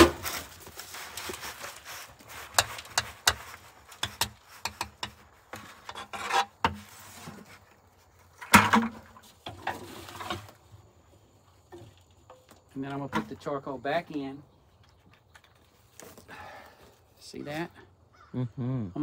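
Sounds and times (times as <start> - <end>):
bucket scraping on metal drum: 0.0 - 7.6, 8.3 - 10.7
manure rustling: 0.0 - 17.4.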